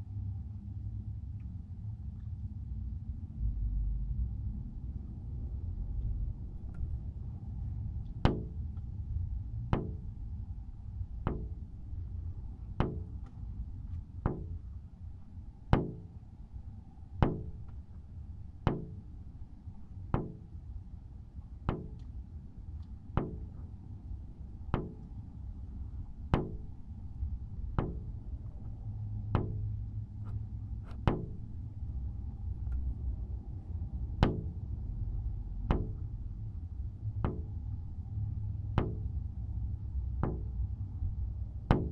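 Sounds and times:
low rumble: 0:00.0 - 0:41.9
sharp ringing knocks: 0:08.2 - 0:08.8, 0:09.7 - 0:10.2, 0:11.2 - 0:12.0, 0:12.6 - 0:13.4, 0:14.1 - 0:14.8, 0:15.7 - 0:16.3, 0:17.1 - 0:17.8, 0:18.6 - 0:19.2, 0:20.1 - 0:20.6, 0:21.7 - 0:22.1, 0:23.2 - 0:23.6, 0:24.7 - 0:25.2, 0:26.3 - 0:26.8, 0:27.7 - 0:28.6, 0:29.3 - 0:29.7, 0:30.8 - 0:31.6, 0:34.2 - 0:34.6, 0:35.7 - 0:36.1, 0:37.2 - 0:37.6, 0:38.8 - 0:39.1, 0:40.2 - 0:40.6, 0:41.7 - 0:41.9.

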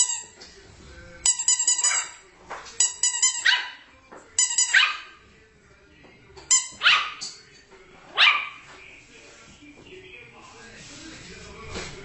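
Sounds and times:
squeaky toy squeaking: 0:00.0 - 0:00.4, 0:01.2 - 0:02.2, 0:02.8 - 0:03.8, 0:04.4 - 0:05.1, 0:06.5 - 0:07.3
puppy barking: 0:03.4 - 0:03.8, 0:04.7 - 0:05.2, 0:06.8 - 0:07.2, 0:08.1 - 0:08.6.

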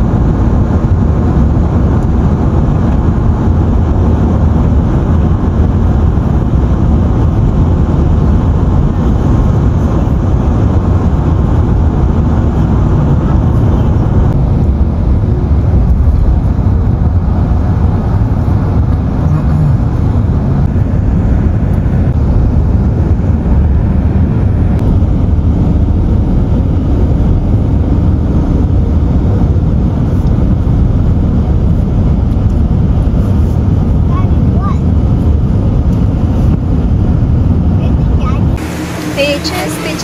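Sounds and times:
car road and engine rumble: 0:00.0 - 0:40.0.

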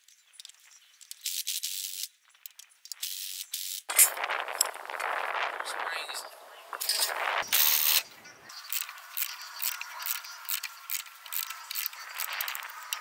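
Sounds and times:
metal clicks and scrapes: 0:06.8 - 0:13.0.

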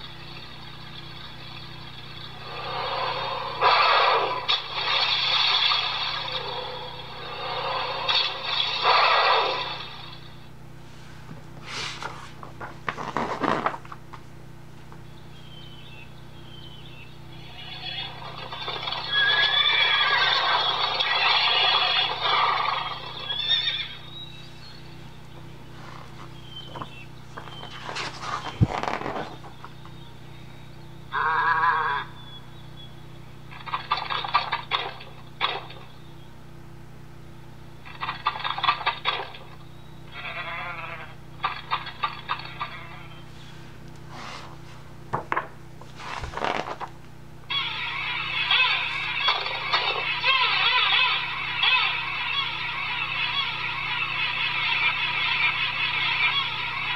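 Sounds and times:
recorded horse neighing from toy speaker: 0:02.6 - 0:04.5, 0:17.4 - 0:24.0, 0:31.1 - 0:32.2, 0:40.1 - 0:43.2, 0:47.5 - 0:56.9
book page turning: 0:11.6 - 0:14.0, 0:25.8 - 0:29.6, 0:44.2 - 0:47.0
sheep bleat: 0:17.4 - 0:18.2, 0:40.1 - 0:41.2.

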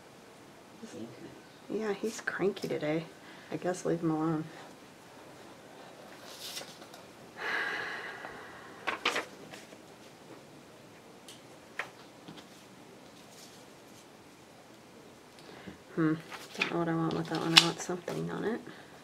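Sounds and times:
paper rustling: 0:05.8 - 0:07.1, 0:08.9 - 0:10.2, 0:11.8 - 0:14.1, 0:16.2 - 0:18.3.

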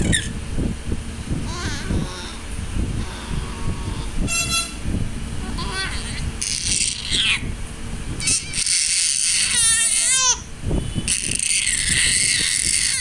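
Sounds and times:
rushing background noise: 0:00.0 - 0:13.0
baby crying: 0:11.2 - 0:13.0.

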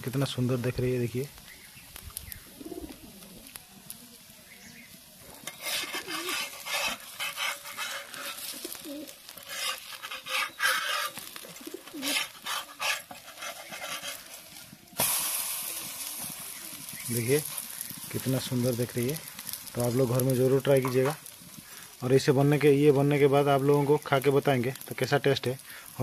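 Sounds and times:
faint hiss of cooking batter: 0:00.0 - 0:26.0
metal spatula scraping iron griddle: 0:05.3 - 0:21.4.

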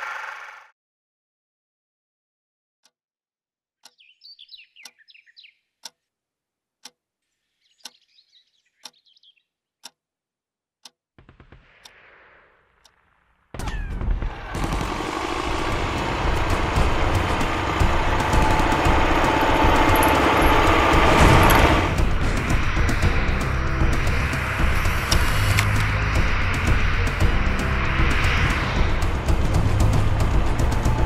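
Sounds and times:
birds chirping: 0:03.8 - 0:06.1, 0:07.2 - 0:09.7
tank engine noise: 0:14.1 - 0:31.0
low rumble: 0:14.2 - 0:31.0
clock ticking: 0:14.6 - 0:31.0.

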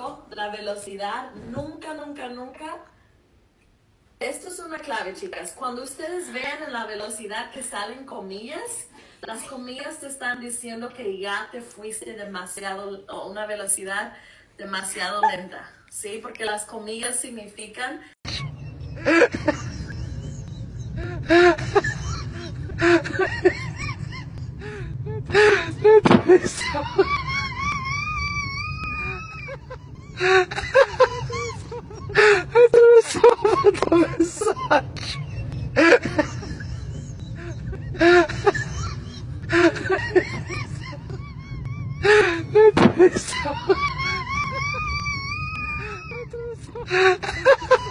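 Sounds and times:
metro car rumbling: 0:18.3 - 0:45.4
people laughing hard: 0:18.3 - 0:47.9.

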